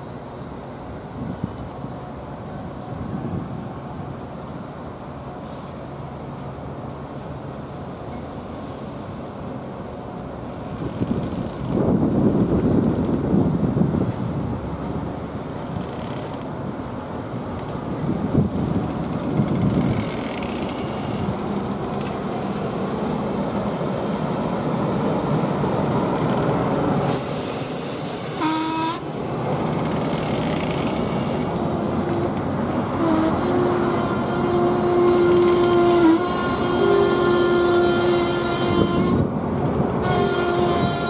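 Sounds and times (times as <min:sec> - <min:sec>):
train wheels rumbling on rails: 0:00.0 - 0:41.0
hiss with falling screech: 0:27.0 - 0:29.0.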